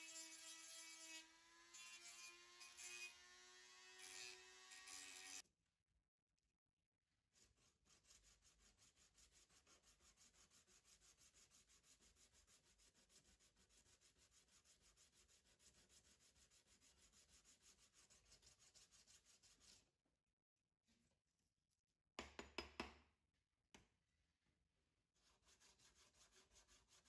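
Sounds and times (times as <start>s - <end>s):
hand file rasping on plastic: 7.4s - 19.9s, 25.2s - 27.0s.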